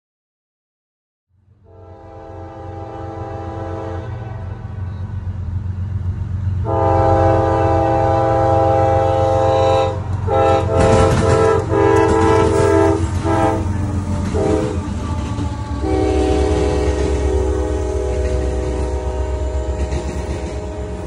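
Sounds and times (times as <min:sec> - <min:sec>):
diesel locomotive engines rumbling: 0:01.3 - 0:21.0
locomotive air horn blasts: 0:01.6 - 0:05.1, 0:06.6 - 0:21.0
train wheels banging over track: 0:09.9 - 0:21.0.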